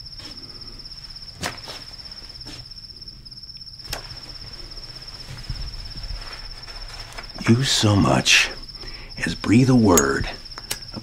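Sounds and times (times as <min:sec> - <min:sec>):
insects trilling: 0:00.0 - 0:11.0
sharp clicks: 0:10.0 - 0:11.0.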